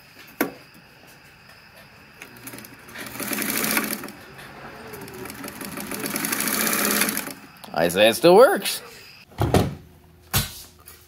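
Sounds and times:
sewing machine running: 2.2s - 7.4s.

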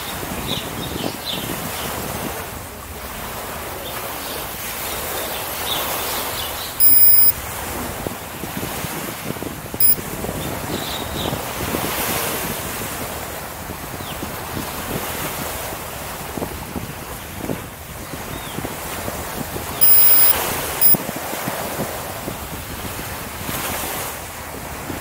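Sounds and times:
wind on microphone: 0.0s - 25.0s
electronic beep: 6.8s - 7.4s, 9.8s - 10.0s, 19.8s - 21.0s.

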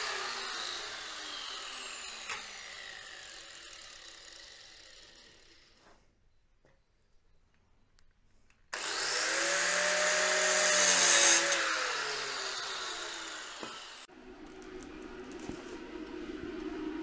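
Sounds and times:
angle grinder cutting steel: 0.0s - 5.8s, 8.8s - 14.1s
low hum: 13.4s - 17.0s.

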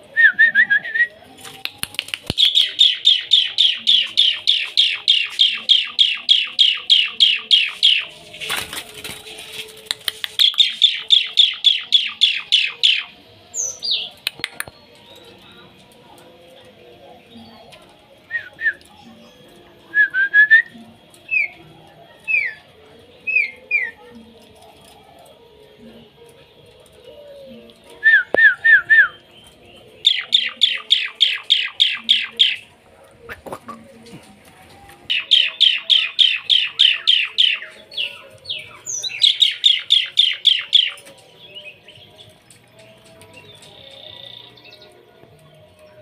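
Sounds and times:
starling whistling: 2.4s - 8.1s, 30.0s - 32.7s, 35.1s - 41.0s.

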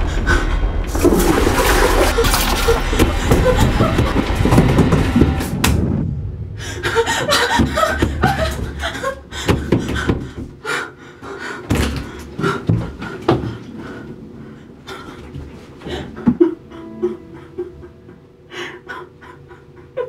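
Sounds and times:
low drone tone: 0.0s - 9.3s
tense horror film score: 0.0s - 20.0s
thuds and knocks: 7.3s - 10.6s.

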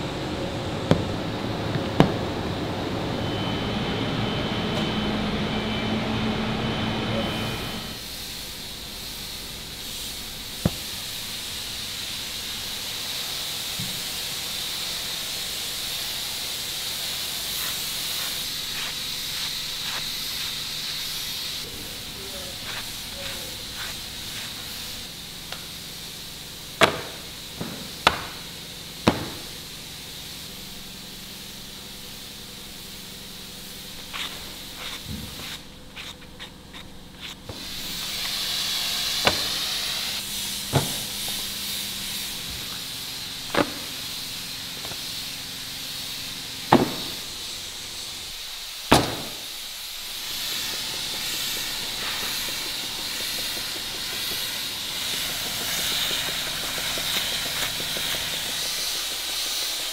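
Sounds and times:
sandpaper rasping on wood: 22.4s - 24.8s, 33.9s - 39.9s, 50.1s - 59.9s.

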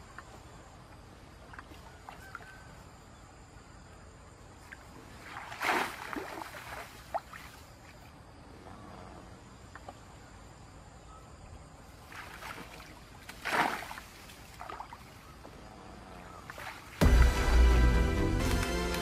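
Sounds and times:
muddy water splashing: 4.6s - 8.2s, 11.7s - 17.8s.

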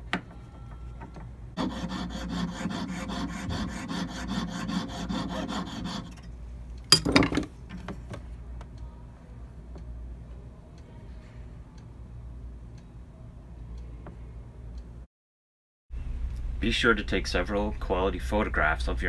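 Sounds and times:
saw rasping on metal: 1.6s - 6.2s.

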